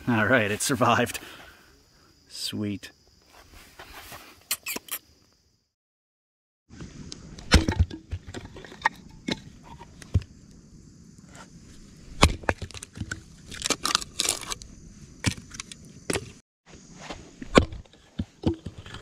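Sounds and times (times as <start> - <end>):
hatchet chopping wood: 12.2 - 12.6
wood cracking and splitting: 12.2 - 14.6.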